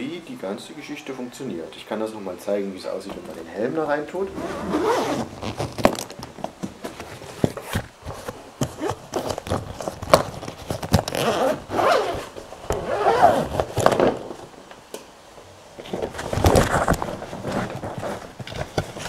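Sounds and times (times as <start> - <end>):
zipper rasping open: 4.3 - 5.9, 8.8 - 10.0, 11.0 - 14.0
bag being handled: 4.3 - 14.2.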